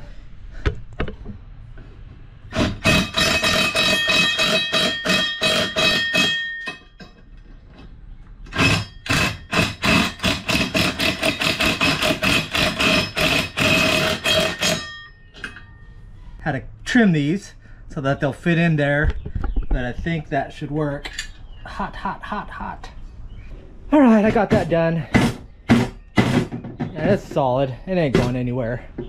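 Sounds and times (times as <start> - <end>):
impact driver hammering bolts: 2.5 - 6.8, 8.5 - 14.8
steel wheel rim ringing: 2.5 - 7.2, 8.5 - 16.0.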